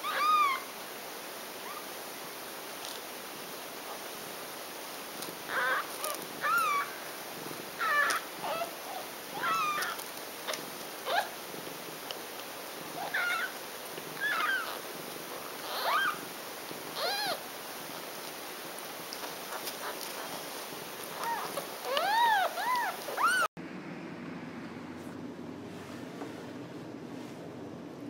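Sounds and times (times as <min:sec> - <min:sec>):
kittens mewing: 0:00.0 - 0:00.7, 0:05.5 - 0:11.4, 0:12.9 - 0:14.8, 0:15.5 - 0:16.2, 0:16.9 - 0:17.4, 0:21.1 - 0:23.5.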